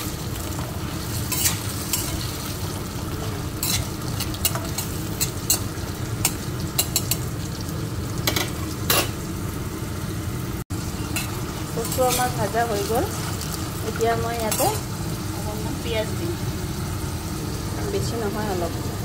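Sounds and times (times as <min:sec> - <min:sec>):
food sizzling in oil: 0:00.0 - 0:19.0
metal spatula scraping a pan: 0:00.4 - 0:02.6, 0:03.6 - 0:07.2, 0:10.9 - 0:13.4.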